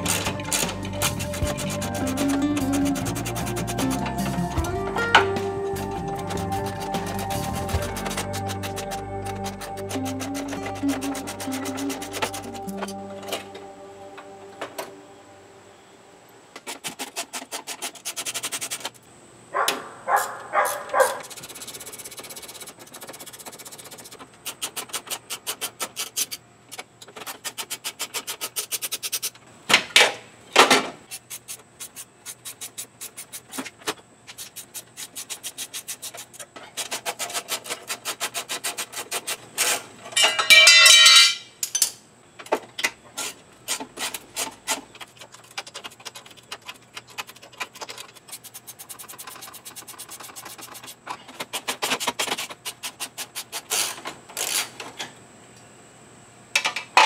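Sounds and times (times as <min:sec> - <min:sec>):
metal clank: 0:40.1 - 0:42.0.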